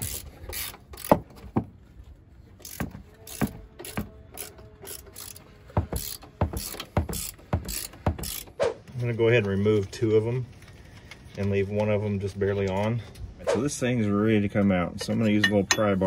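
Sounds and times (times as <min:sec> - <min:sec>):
ratchet wrench clicking: 0:00.0 - 0:01.2, 0:02.6 - 0:08.5.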